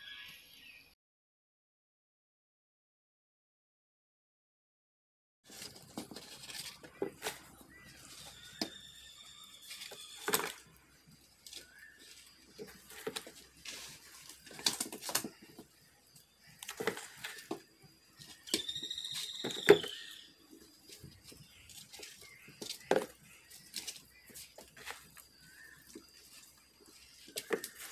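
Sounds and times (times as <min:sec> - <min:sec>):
fish flopping and slapping: 0:11.4 - 0:15.7, 0:20.8 - 0:27.9.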